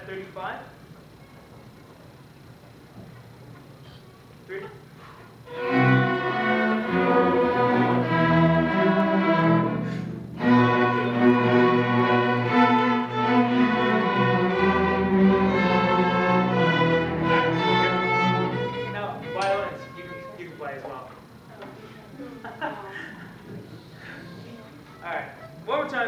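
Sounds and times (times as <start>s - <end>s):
string orchestra playing: 5.4s - 20.9s.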